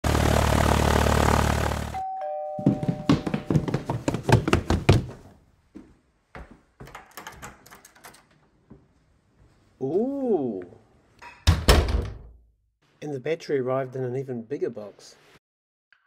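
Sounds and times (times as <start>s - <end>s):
two-note doorbell chime: 2.0s - 3.4s
door deadlock clicking: 6.8s - 8.4s.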